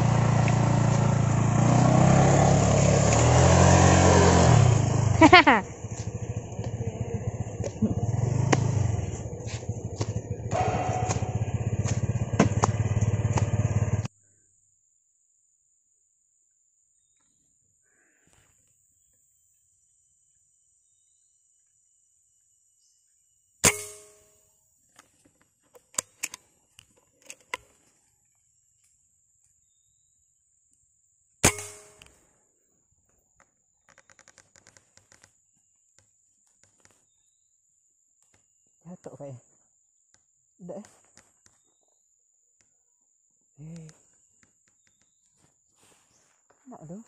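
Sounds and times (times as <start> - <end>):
motorcycle engine labouring: 0.0 - 14.1
sharp clicks and knocks: 10.0 - 13.5
air rifle shot: 10.5 - 11.4, 31.4 - 32.0.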